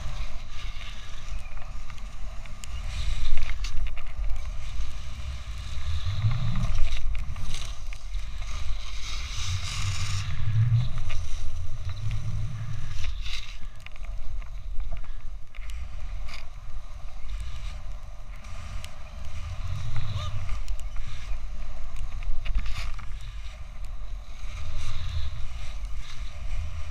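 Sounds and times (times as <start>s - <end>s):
wind rumbling on microphone: 0.0s - 26.9s
snowboard hissing through snow: 4.5s - 13.6s, 23.3s - 26.9s.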